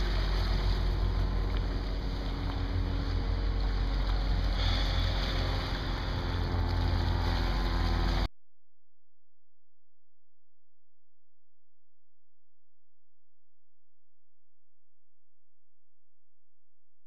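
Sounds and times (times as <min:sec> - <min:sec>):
water washing against rocky shore: 0:00.0 - 0:08.2.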